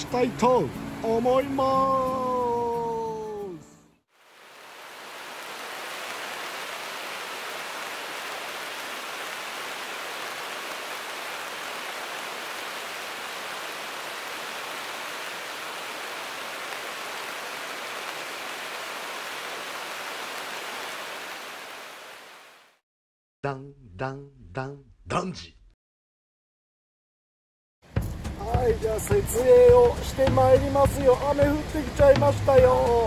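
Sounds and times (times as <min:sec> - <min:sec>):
river rapids rushing: 0:04.3 - 0:22.6.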